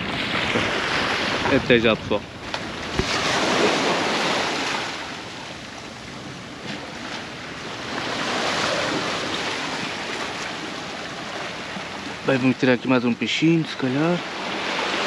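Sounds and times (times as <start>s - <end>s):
sea surf breaking: 0.0s - 15.0s.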